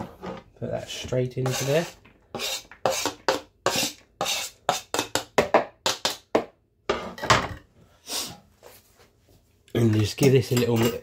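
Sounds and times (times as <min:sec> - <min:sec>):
knife scraping a chopping board: 0:01.4 - 0:05.1.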